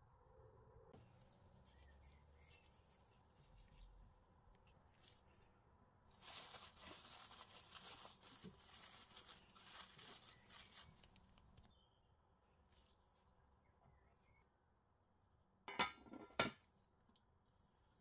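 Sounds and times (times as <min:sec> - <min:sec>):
cling film crinkling: 0:01.0 - 0:05.3, 0:06.1 - 0:11.7.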